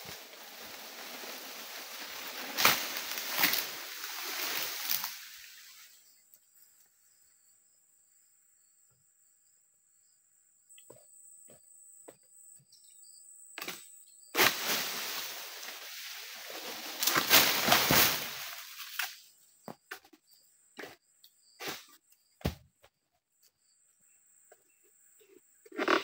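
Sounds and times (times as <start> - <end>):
palm frond crashing through leaves: 0.0 - 5.7, 14.4 - 19.2.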